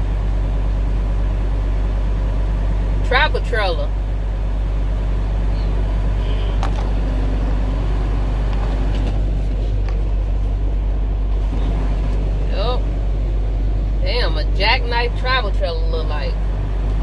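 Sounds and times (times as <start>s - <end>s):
truck engine drone: 0.0s - 17.0s.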